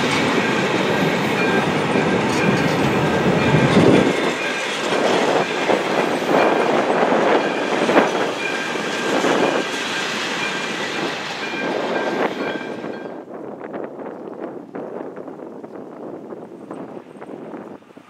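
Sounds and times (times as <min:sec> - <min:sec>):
train wheels clattering: 0:00.0 - 0:13.2.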